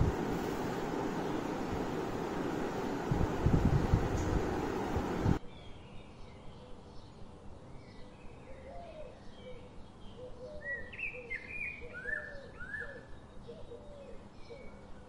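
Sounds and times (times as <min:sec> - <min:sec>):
birds chirping: 0:00.0 - 0:05.7.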